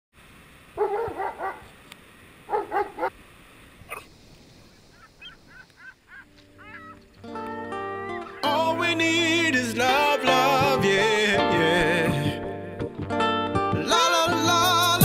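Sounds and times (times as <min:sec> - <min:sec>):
dog barking: 0:00.8 - 0:01.7, 0:02.5 - 0:03.1.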